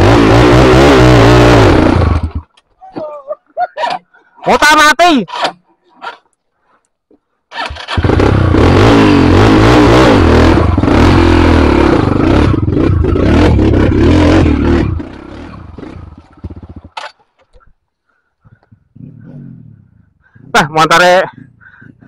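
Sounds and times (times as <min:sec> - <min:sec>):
dirt bike engine revving: 0:00.0 - 0:02.5, 0:07.5 - 0:17.2.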